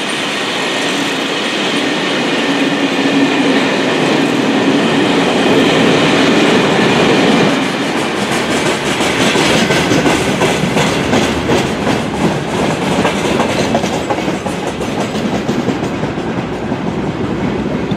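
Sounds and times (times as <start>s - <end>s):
freight wagons rolling on rails: 7.9s - 17.9s
wheels clicking over rail joints: 7.9s - 17.9s.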